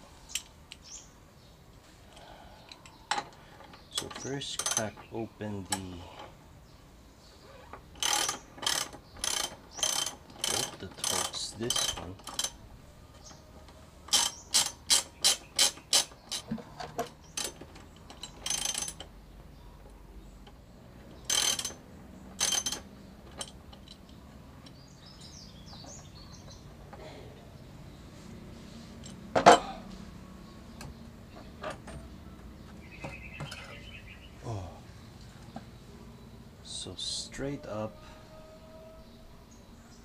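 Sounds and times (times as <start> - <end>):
ratchet wrench clicking: 4.0 - 5.0, 8.0 - 12.6, 14.1 - 16.5, 17.4 - 19.1, 21.2 - 21.8, 22.4 - 24.1.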